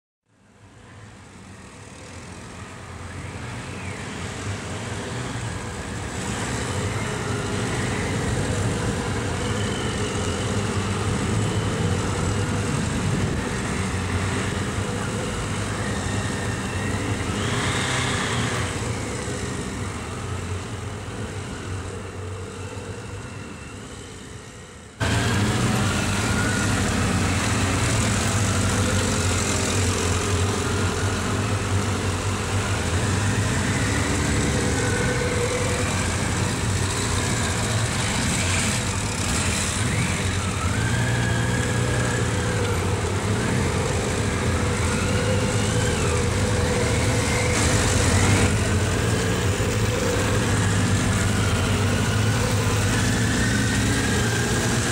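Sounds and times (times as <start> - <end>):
motorcycle engines at low speed: 0.4 - 54.9.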